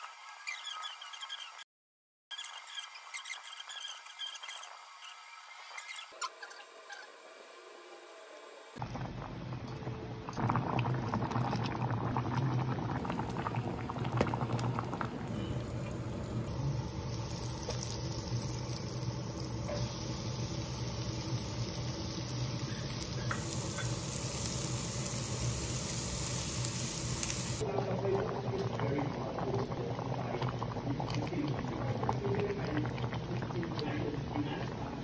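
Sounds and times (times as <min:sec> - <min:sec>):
water bubbling: 0:08.8 - 0:19.7, 0:27.6 - 0:35.0.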